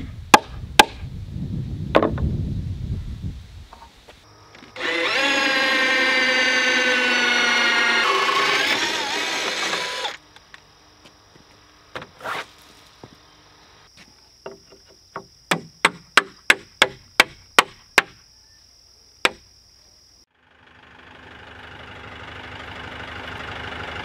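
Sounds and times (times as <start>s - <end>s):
power drill whining: 4.6s - 10.2s.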